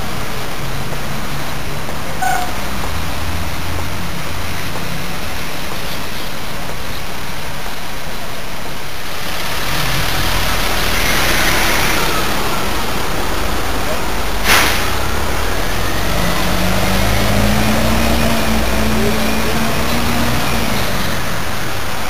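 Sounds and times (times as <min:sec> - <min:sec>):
vehicle passing: 0:00.0 - 0:05.6, 0:09.1 - 0:22.0
traffic hum: 0:00.0 - 0:22.0.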